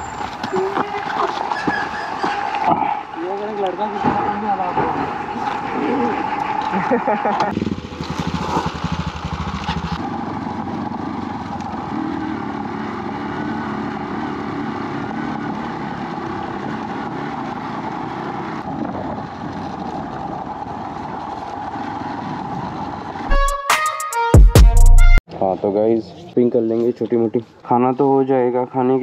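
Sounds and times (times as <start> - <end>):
motorcycle engine passing by: 0.0 - 23.3
motorcycle engine running steadily: 7.4 - 12.9
wind noise: 18.1 - 23.4.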